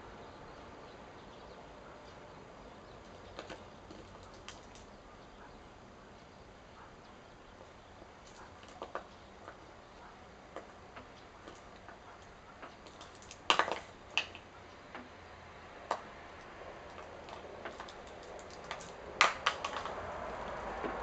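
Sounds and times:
plastic container clattering on asphalt: 12.9 - 14.5, 17.3 - 20.0.

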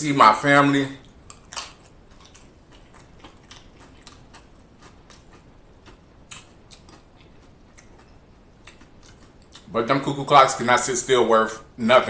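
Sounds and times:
person chewing crisp chips: 1.0 - 9.7.

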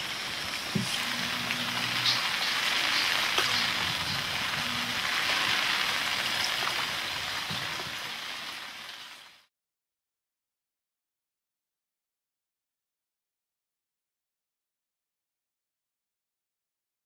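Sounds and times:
steady water hiss: 0.0 - 9.5
faint low hum: 0.8 - 5.2.

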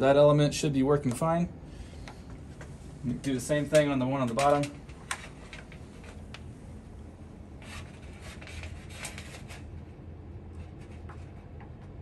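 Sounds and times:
low steady hum: 0.0 - 12.0
probes rubbing and scraping: 7.6 - 9.8.

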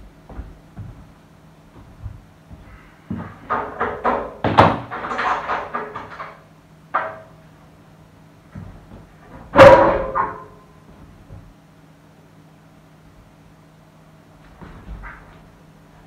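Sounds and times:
loud ringing metal clank: 9.5 - 10.7.

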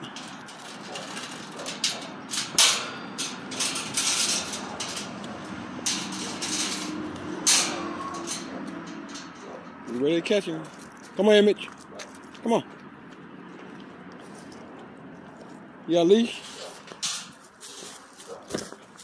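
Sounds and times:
metal gate latch clanking: 0.0 - 10.0, 16.5 - 17.4.

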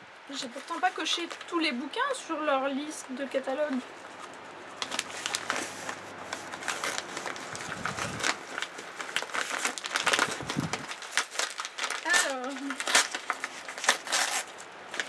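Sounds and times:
paper mailer tearing and crinkling: 4.8 - 15.0.

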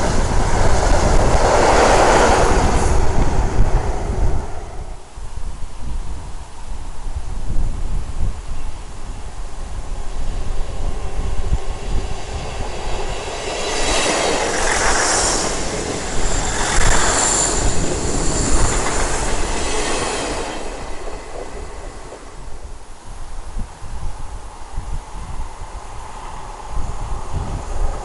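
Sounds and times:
diesel train passing: 0.0 - 5.2, 9.3 - 23.6
high squeal: 11.2 - 22.6.

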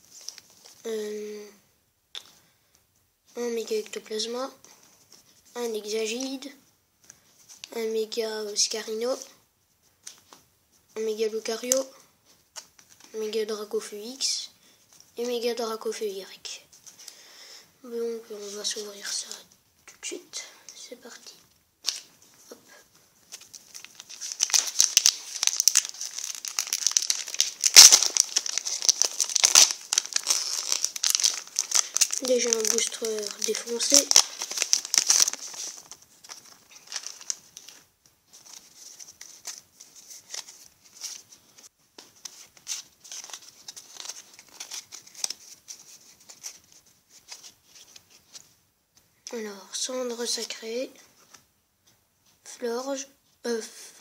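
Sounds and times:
trading cards rustling: 20.1 - 48.5
foil wrapper crinkling and tearing: 23.3 - 41.4, 42.2 - 48.4.

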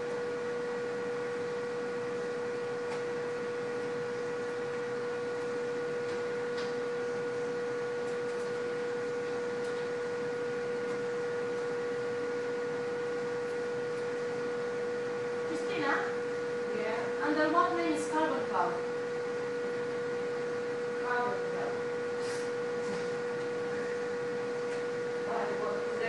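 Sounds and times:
electrical hum: 0.0 - 26.0.

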